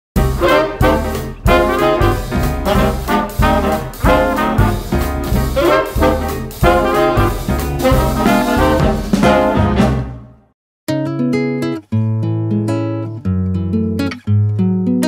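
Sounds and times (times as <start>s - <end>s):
swing music with brass: 0.2s - 10.5s.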